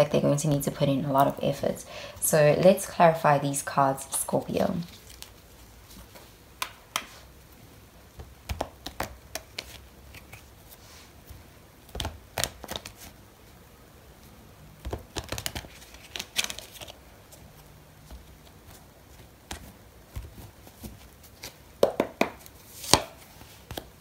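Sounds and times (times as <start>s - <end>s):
cards shuffling: 4.8s - 7.2s, 8.2s - 10.8s, 11.9s - 13.2s, 14.8s - 24.0s.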